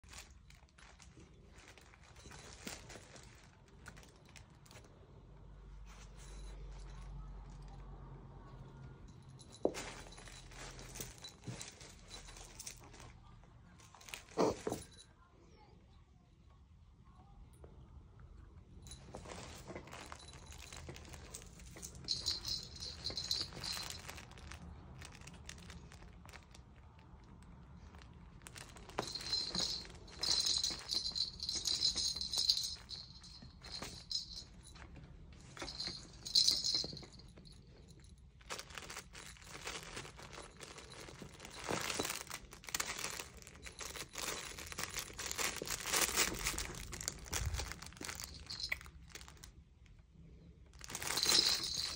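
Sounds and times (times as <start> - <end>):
fabric toy rustling and crinkling: 0.0 - 5.1, 9.3 - 15.0, 18.9 - 49.6, 50.7 - 51.9
small bells jingling in cat toy: 18.9 - 25.3, 28.4 - 34.8, 35.5 - 49.4, 50.8 - 51.9.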